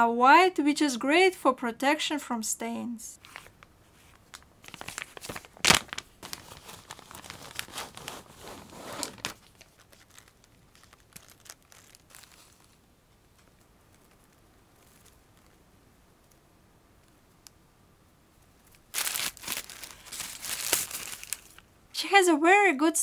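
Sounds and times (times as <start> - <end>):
plastic bag crinkling: 3.2 - 12.8, 18.7 - 21.7.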